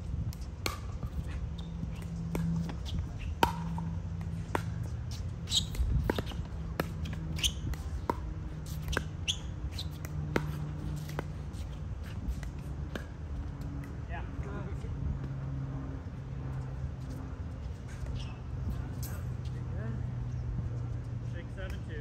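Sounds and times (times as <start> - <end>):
steady low hum: 0.0 - 22.0
ball bouncing on court: 0.3 - 11.7
sneakers squeaking on court: 1.0 - 13.0, 16.4 - 19.0.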